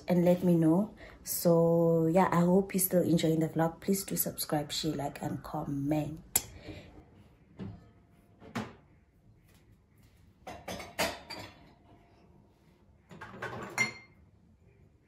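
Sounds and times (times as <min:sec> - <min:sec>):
dishes and cutlery clinking: 0:10.4 - 0:12.1, 0:13.1 - 0:14.2.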